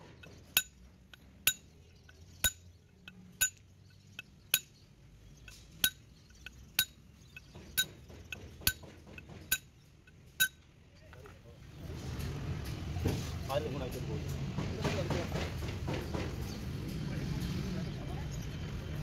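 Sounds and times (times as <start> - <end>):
hammer striking steel: 0.0 - 1.7, 2.4 - 2.6, 6.8 - 9.7.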